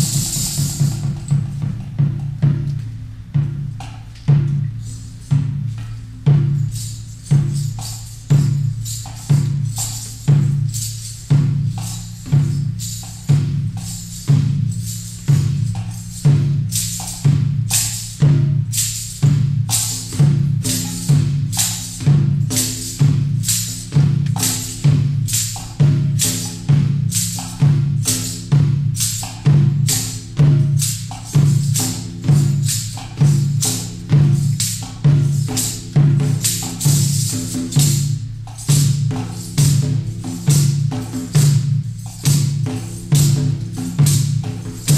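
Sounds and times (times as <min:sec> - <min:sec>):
deep hand drum strokes: 0:00.0 - 0:44.9.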